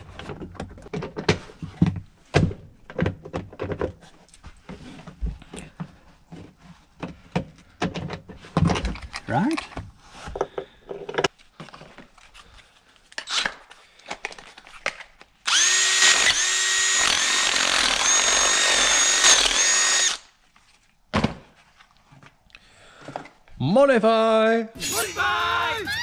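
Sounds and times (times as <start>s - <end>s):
power drill motor whine: 15.5s - 20.3s.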